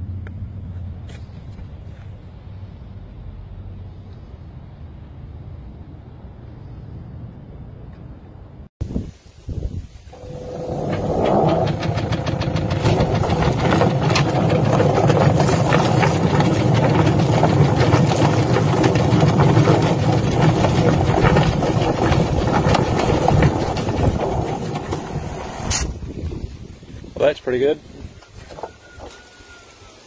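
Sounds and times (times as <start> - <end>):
chicken plucker clattering: 10.2 - 25.9
hose spraying water: 12.6 - 26.0.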